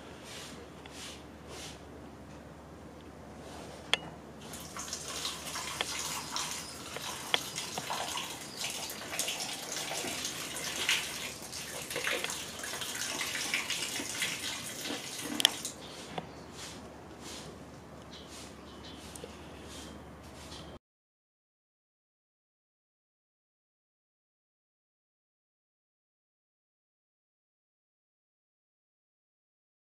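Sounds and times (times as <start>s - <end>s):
water pouring and splashing: 4.4s - 15.8s.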